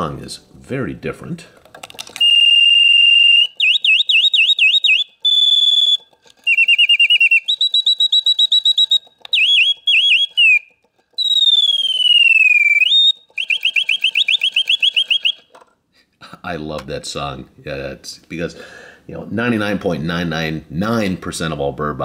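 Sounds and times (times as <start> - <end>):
mechanical bird whistling: 2.2 - 15.6.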